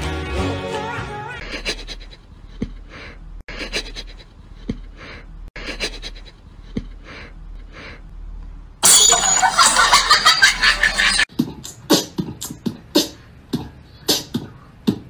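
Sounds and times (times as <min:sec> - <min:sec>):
cat sniffing: 0:01.4 - 0:08.1.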